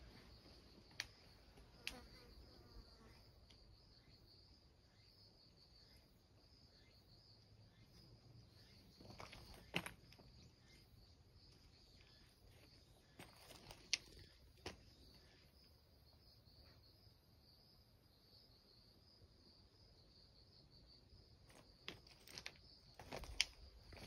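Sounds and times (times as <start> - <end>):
insects chirring: 0.0 - 24.0
clicks and rustles: 21.9 - 24.0.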